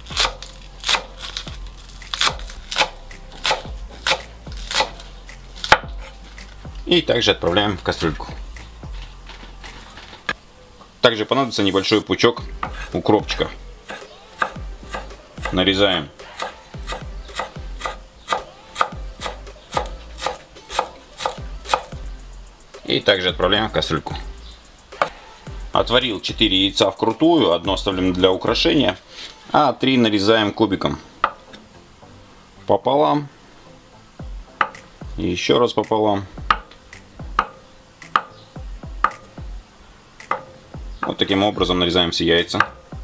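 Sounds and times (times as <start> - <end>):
cleaver chopping on wooden board: 0.1 - 1.5, 2.1 - 5.0, 5.6 - 6.5, 12.6 - 13.0, 13.8 - 15.6, 16.2 - 21.9, 25.0 - 25.2, 34.6 - 34.9, 36.4 - 38.4, 39.0 - 39.4, 40.2 - 41.2, 42.6 - 42.8.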